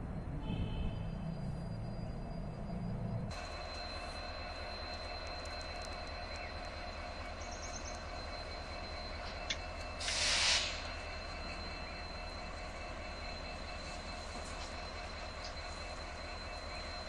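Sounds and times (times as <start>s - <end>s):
distant diesel locomotive idling: 1.0s - 17.0s
short sharp hiss: 10.0s - 10.8s.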